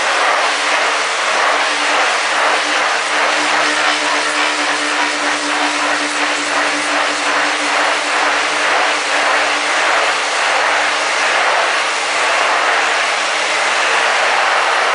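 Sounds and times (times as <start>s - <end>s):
rotating rig whirring: 0.1s - 14.9s.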